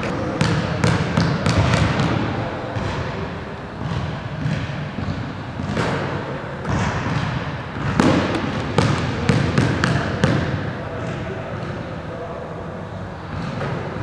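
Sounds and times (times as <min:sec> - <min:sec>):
basketball bouncing on wooden floor: 0:00.4 - 0:02.2, 0:03.8 - 0:06.0, 0:06.7 - 0:11.2.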